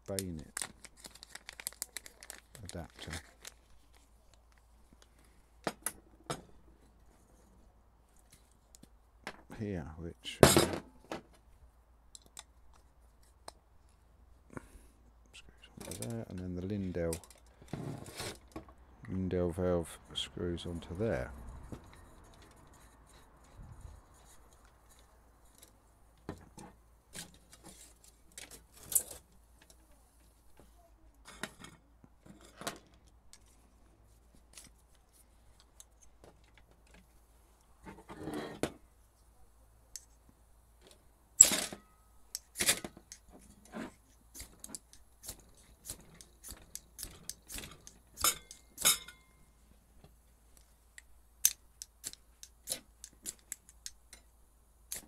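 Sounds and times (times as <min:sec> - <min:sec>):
small metallic clicks and clinks: 0:17.1 - 0:17.6, 0:41.4 - 0:49.5.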